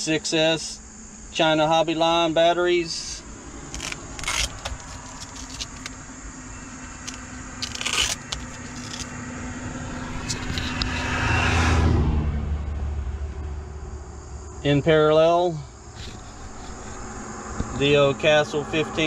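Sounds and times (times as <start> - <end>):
vehicle rumble: 0.8 - 19.0
hand handling battery packs: 3.7 - 9.2.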